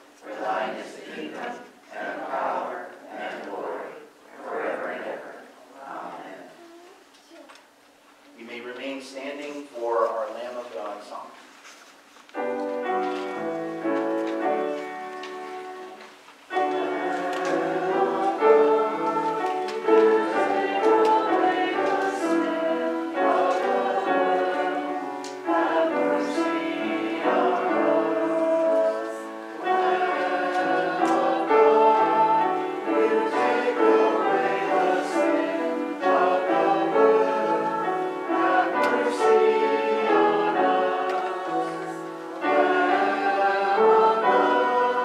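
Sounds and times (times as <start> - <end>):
congregation singing a hymn: 0.0 - 6.6, 12.4 - 45.0
instrumental accompaniment: 12.4 - 45.0.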